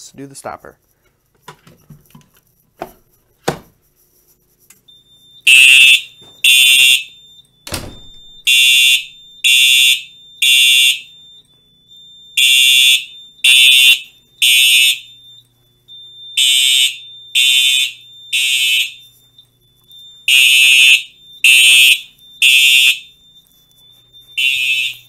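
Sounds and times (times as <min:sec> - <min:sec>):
fire alarm horn blasts: 0:04.8 - 0:25.0.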